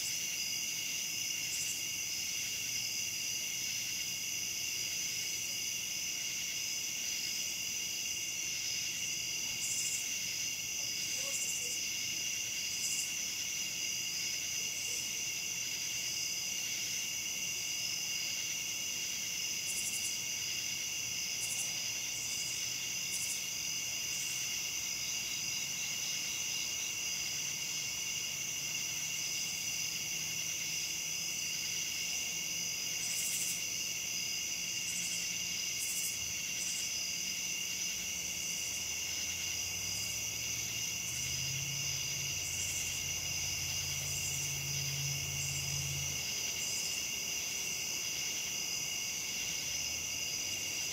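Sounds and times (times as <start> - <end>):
crickets and katydids singing: 0.0 - 50.9
short raspy insect calls: 32.9 - 33.7, 41.0 - 48.8.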